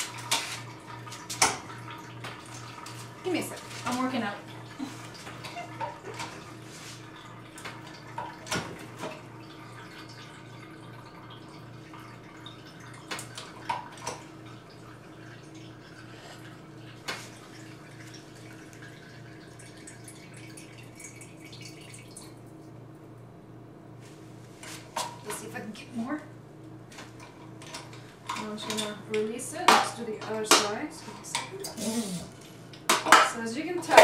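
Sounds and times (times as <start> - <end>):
juice dripping: 0.0 - 22.9.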